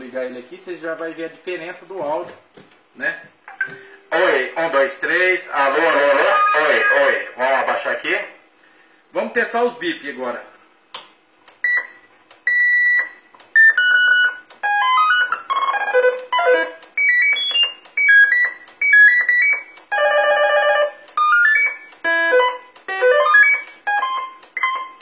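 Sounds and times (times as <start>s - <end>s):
electronic beep tunes: 11.6s - 25.0s.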